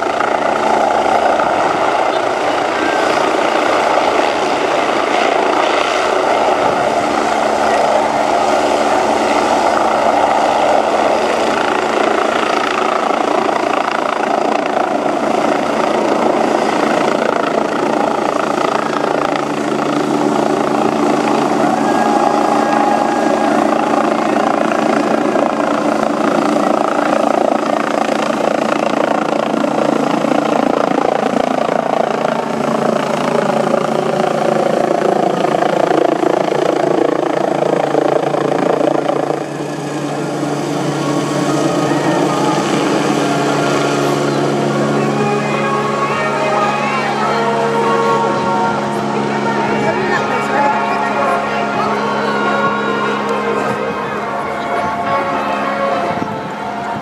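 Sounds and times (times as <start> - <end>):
helicopter taking off: 0.0 - 57.0
turbine engine whine: 0.0 - 57.0.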